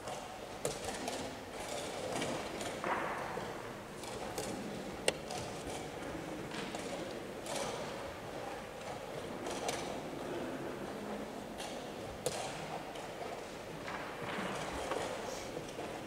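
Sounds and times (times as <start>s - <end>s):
murmur of voices: 13.7s - 16.0s.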